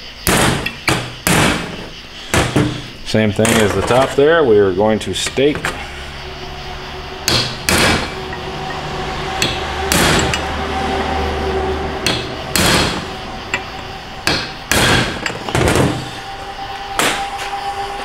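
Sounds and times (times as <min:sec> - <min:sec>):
hammer striking metal punch: 0:00.2 - 0:01.8, 0:07.2 - 0:08.5, 0:09.4 - 0:10.5, 0:12.0 - 0:16.0.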